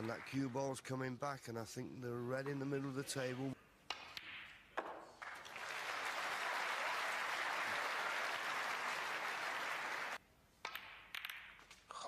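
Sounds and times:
audience applause: 0:05.2 - 0:10.2.

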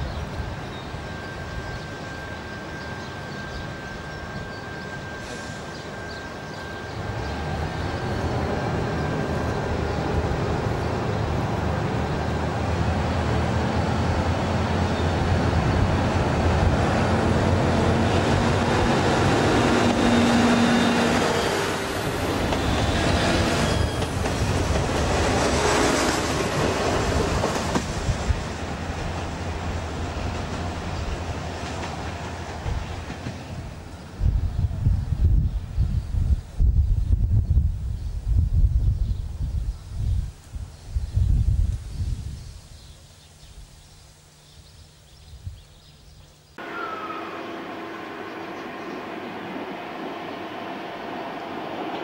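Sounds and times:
diesel railcar engine passing: 0:00.0 - 0:35.8, 0:46.6 - 0:52.0.

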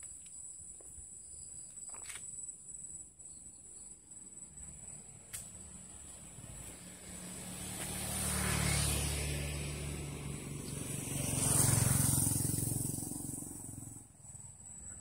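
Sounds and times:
vehicle engine passing by: 0:04.9 - 0:14.7.

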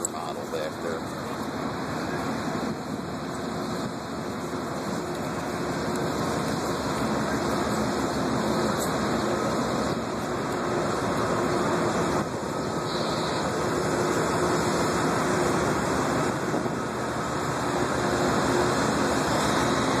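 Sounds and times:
diesel locomotive idling: 0:00.0 - 0:20.0.

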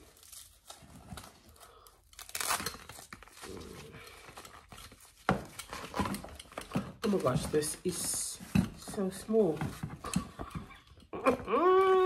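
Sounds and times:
packaging crinkling: 0:00.0 - 0:06.2.

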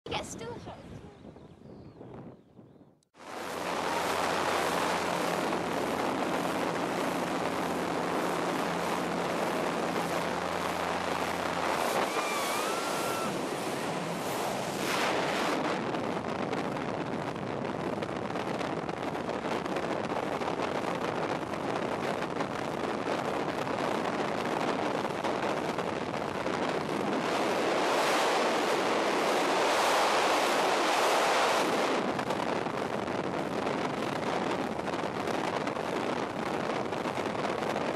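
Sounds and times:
wind buffeting microphone: 0:00.1 - 0:37.9
plane engine drone: 0:03.2 - 0:16.8, 0:24.8 - 0:32.4.

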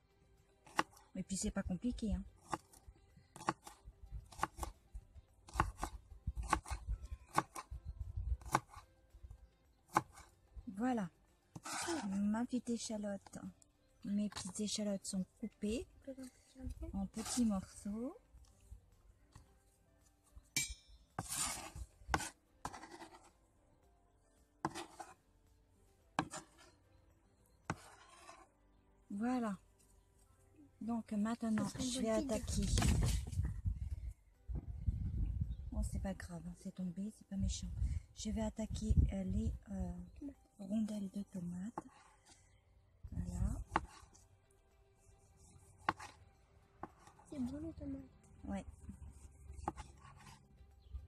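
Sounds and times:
knife chopping on a board: 0:03.4 - 0:04.7, 0:05.5 - 0:07.7, 0:08.4 - 0:08.8, 0:26.2 - 0:26.5, 0:43.7 - 0:44.0.

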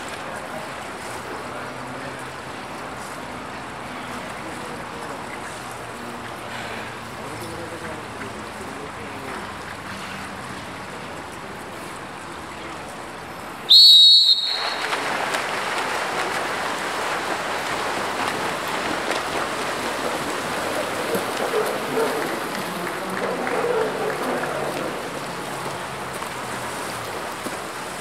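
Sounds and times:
even background noise: 0:00.0 - 0:28.0
shrill whistle blast: 0:13.7 - 0:14.9.

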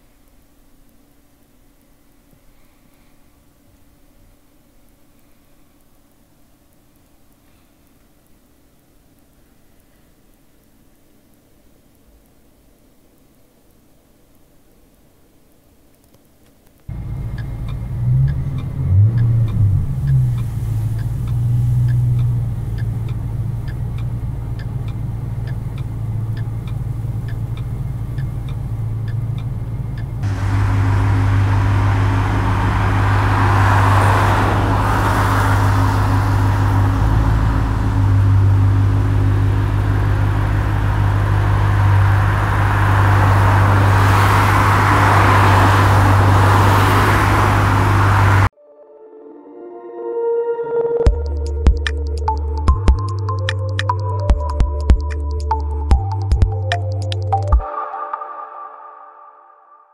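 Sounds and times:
light regular ticking: 0:00.0 - 0:47.2, 0:51.1 - 0:57.6
tyre and road noise: 0:16.8 - 0:48.5
car engine hum while driving: 0:16.9 - 0:48.5
car engine idling and revving: 0:16.9 - 0:48.5.

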